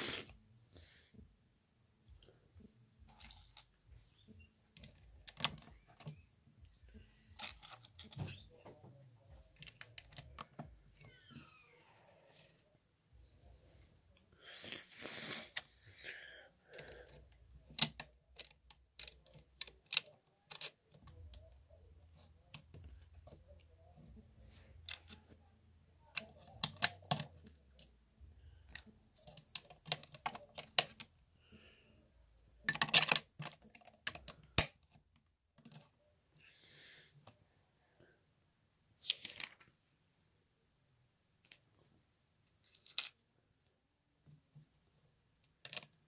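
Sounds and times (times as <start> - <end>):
plastic bricks clicking: 16.7 - 21.5, 26.1 - 27.9, 28.7 - 31.1, 32.6 - 35.0, 42.6 - 43.2, 45.4 - 46.0.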